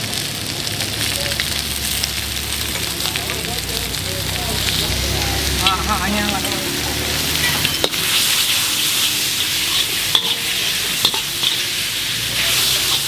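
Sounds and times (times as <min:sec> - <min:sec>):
noodles sizzling in a wok: 0:00.0 - 0:13.0
stirring and scraping in a wok: 0:04.6 - 0:13.0.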